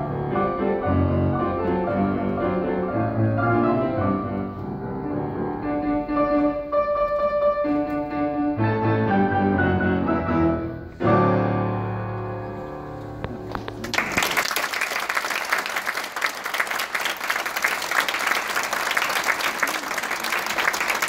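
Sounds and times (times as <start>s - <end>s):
piano chord ringing: 6.0s - 13.6s
audience applause: 13.6s - 21.0s.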